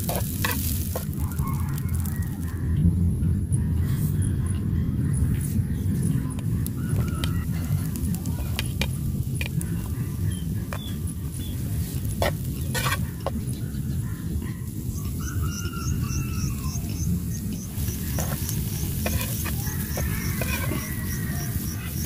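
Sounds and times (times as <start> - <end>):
steady low rumble: 0.0 - 22.0
bird chirping: 12.5 - 22.0
metal spatula striking a pan: 18.0 - 21.6.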